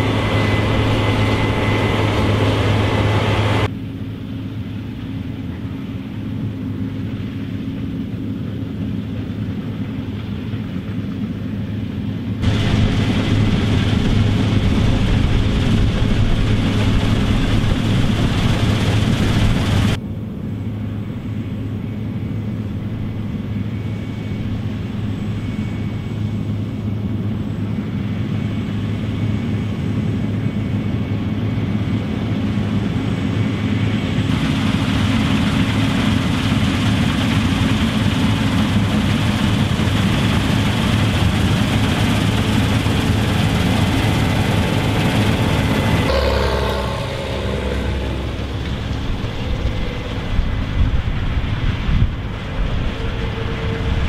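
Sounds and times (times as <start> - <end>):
combine harvester engine drone: 0.0 - 54.0
machinery threshing crop: 12.4 - 20.0.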